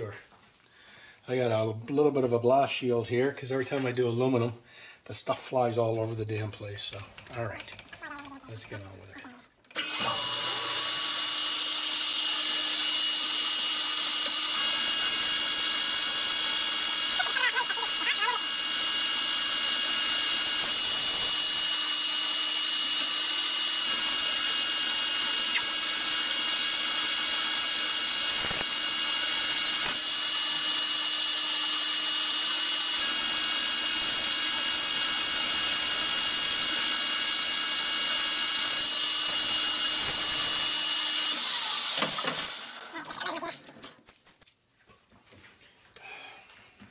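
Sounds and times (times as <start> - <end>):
lathe whining: 9.7 - 42.9.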